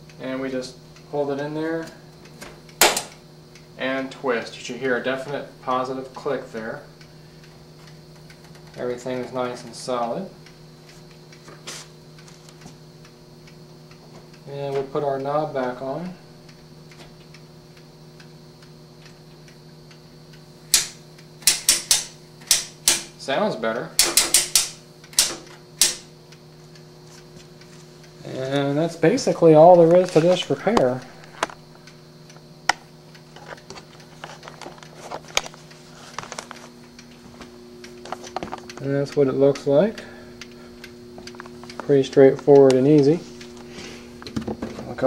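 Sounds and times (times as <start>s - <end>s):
low steady hum: 0.0s - 45.0s
mechanical timer ticking faintly: 0.0s - 45.0s
rotary switch clicks: 1.8s - 3.7s, 7.8s - 10.6s, 16.4s - 23.2s, 23.9s - 27.6s, 37.8s - 45.0s.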